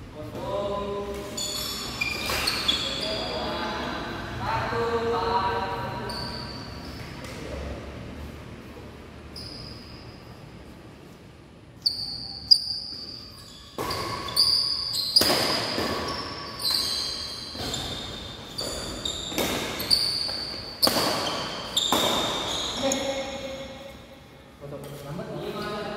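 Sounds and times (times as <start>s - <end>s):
sneakers squeaking on floor: 0.4s - 4.2s, 4.8s - 7.8s, 8.6s - 11.2s, 11.8s - 24.1s
rackets striking shuttlecock: 13.7s - 22.8s.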